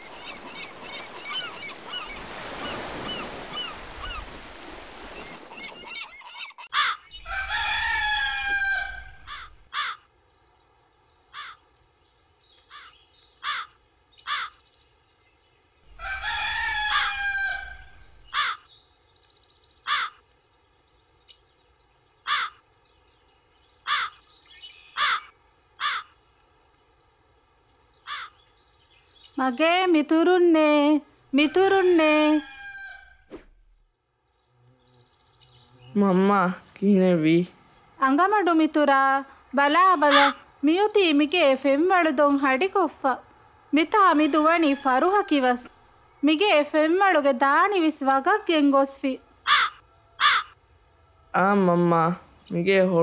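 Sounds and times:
surf wash: 0:00.0 - 0:06.0
crow cawing: 0:06.6 - 0:10.1, 0:11.3 - 0:11.6, 0:12.7 - 0:14.6, 0:15.9 - 0:18.7, 0:19.8 - 0:20.2, 0:22.2 - 0:22.6, 0:23.8 - 0:24.2, 0:25.0 - 0:26.2, 0:28.0 - 0:28.4, 0:49.4 - 0:50.6
rooster crowing: 0:06.8 - 0:10.0, 0:15.9 - 0:18.6, 0:31.4 - 0:33.3, 0:43.9 - 0:45.7, 0:49.4 - 0:51.4
faint gull cries: 0:16.0 - 0:18.6, 0:25.0 - 0:26.1, 0:49.5 - 0:50.6.

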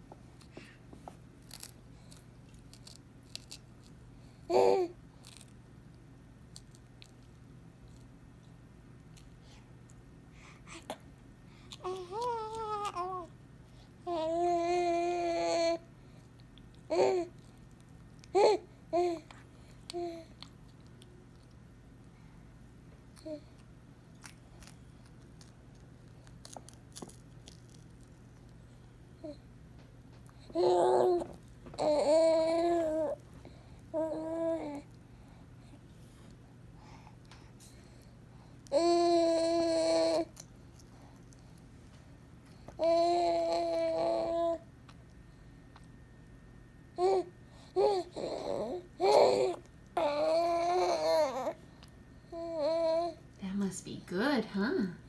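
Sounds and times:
baby crunching snack: 0:24.1 - 0:28.5.

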